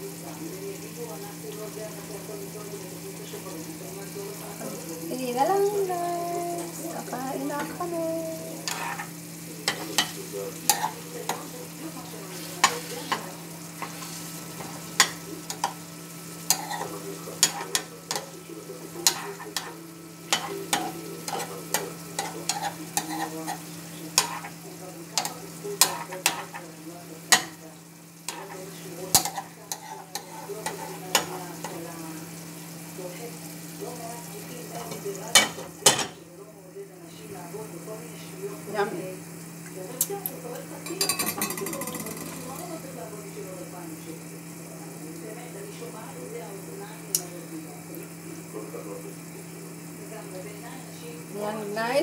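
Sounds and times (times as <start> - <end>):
sauce simmering and sizzling: 0.0 - 52.0
metal spoon scraping a pan: 8.6 - 11.5, 12.2 - 15.8, 16.5 - 18.4, 19.0 - 24.6, 25.2 - 26.6, 28.3 - 31.8.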